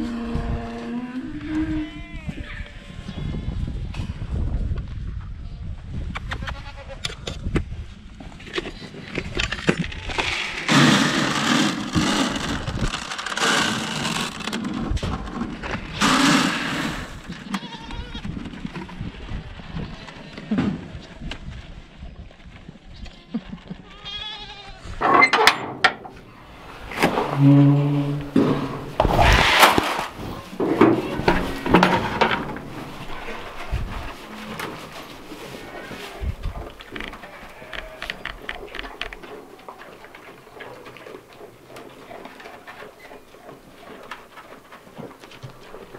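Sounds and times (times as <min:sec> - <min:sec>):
pellets rattling into plastic trough: 0:09.9 - 0:17.2
plastic bucket rubbing: 0:09.9 - 0:17.3, 0:26.2 - 0:37.2.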